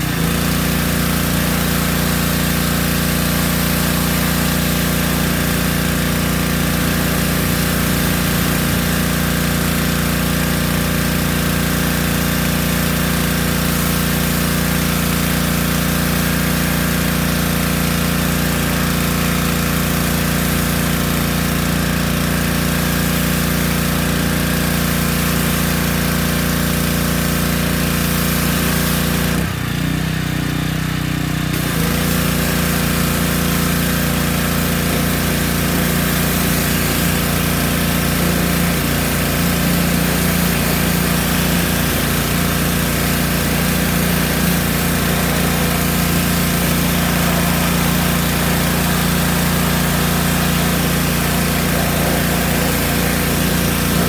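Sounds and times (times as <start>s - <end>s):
pressure washer engine humming: 0.0s - 54.0s
high-pressure spray hissing: 0.7s - 10.5s, 31.6s - 54.0s.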